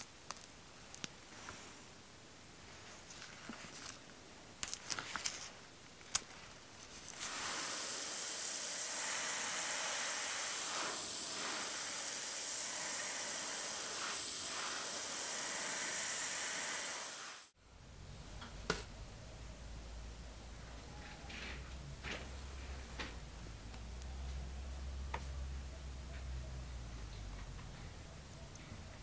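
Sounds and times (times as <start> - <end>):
spray hiss: 7.1 - 17.6.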